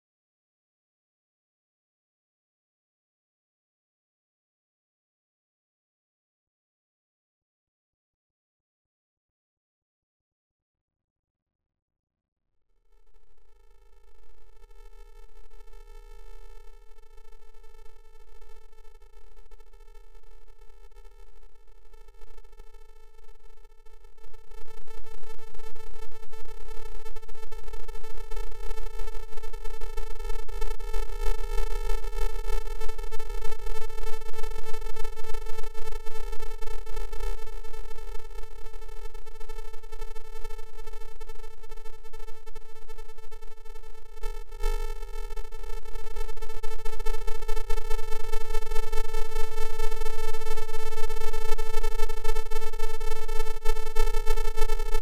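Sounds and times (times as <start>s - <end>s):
electronic buzzing drone: 20.6s - 55.0s.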